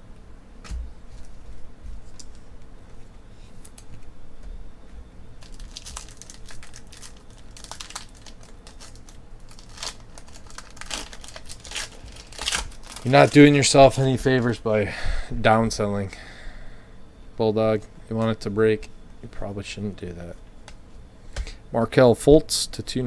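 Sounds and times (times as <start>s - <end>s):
foil wrapper tearing and crinkling: 5.4s - 13.8s.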